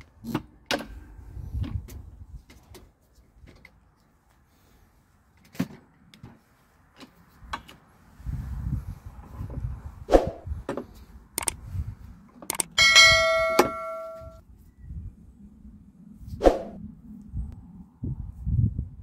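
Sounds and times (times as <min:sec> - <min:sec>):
metal piece ringing: 0:12.8 - 0:14.4.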